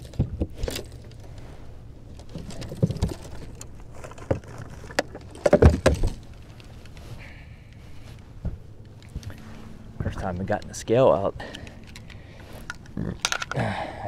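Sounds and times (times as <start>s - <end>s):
knocks and clatter on boat deck: 4.2s - 6.2s.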